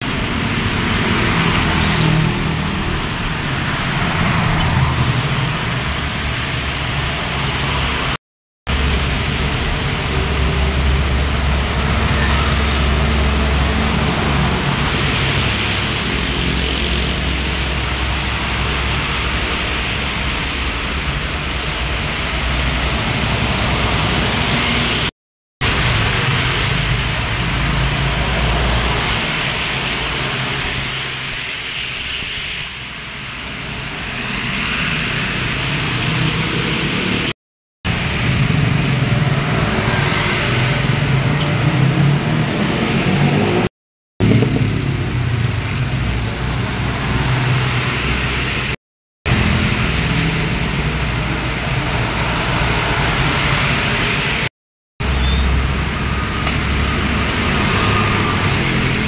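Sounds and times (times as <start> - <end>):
traffic passing on wet road: 0.0 - 59.0
thin high whistle: 27.9 - 33.0, 55.1 - 56.5.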